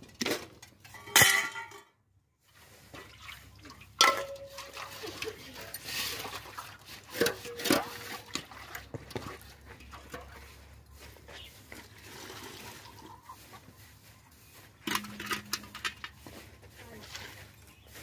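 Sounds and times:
metal pots knocking and scraping: 0.0 - 2.0, 3.0 - 13.5, 14.5 - 16.7
metal pot clanks: 4.0 - 5.9, 7.1 - 8.4, 14.9 - 16.2.

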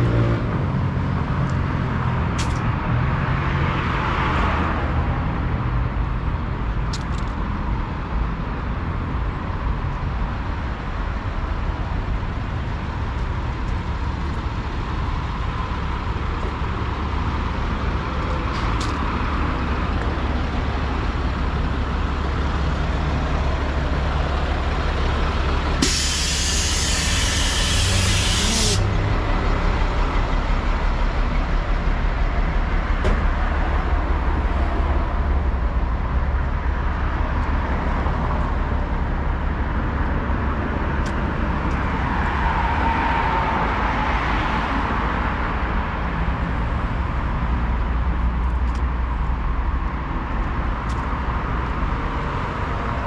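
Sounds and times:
heavy vehicle engines running: 0.0 - 53.0
air brake hissing: 25.8 - 29.0.

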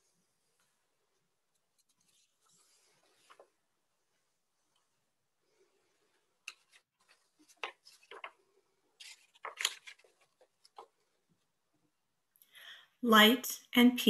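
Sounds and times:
small handling clicks and rustles: 6.4 - 11.2.

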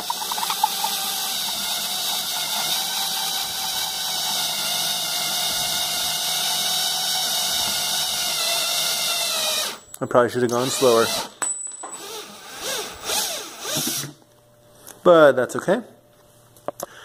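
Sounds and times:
electric drill cutting plexiglass: 0.0 - 9.8, 10.6 - 11.3, 12.0 - 14.2.

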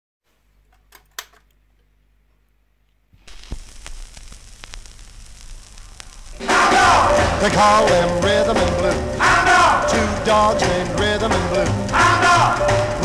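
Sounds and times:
record surface hiss and crackle: 0.3 - 13.0
sharp clicks: 3.2 - 8.9
stylus drop: 3.2 - 11.7.

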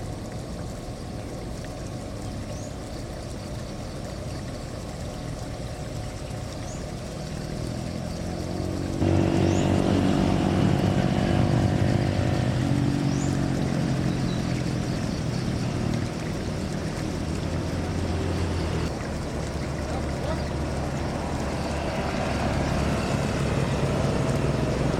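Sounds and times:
aircraft engine rumble: 6.5 - 24.9.

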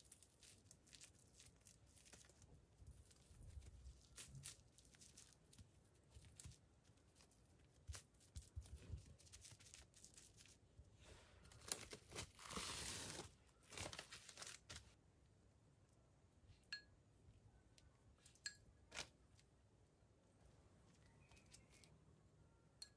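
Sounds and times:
soft crinkling and tearing: 0.0 - 15.0, 20.3 - 22.0.

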